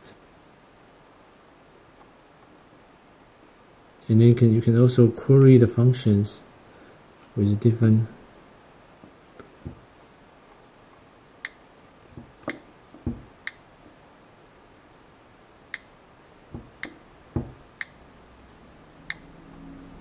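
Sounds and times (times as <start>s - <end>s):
fingertip tapping on glass: 16.5s - 17.6s.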